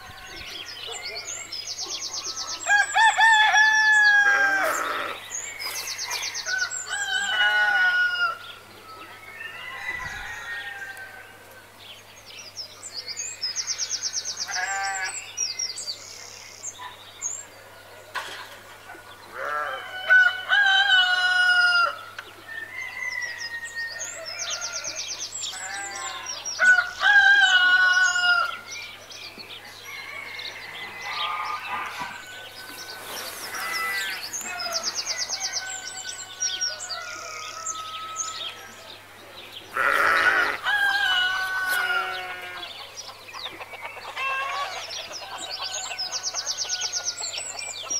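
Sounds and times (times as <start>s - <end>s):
roosters crowing: 2.4s - 8.6s, 9.2s - 11.5s, 19.3s - 28.7s, 29.7s - 38.9s, 39.7s - 43.0s, 44.0s - 47.6s
small birds chirping: 4.3s - 7.2s, 30.6s - 47.9s.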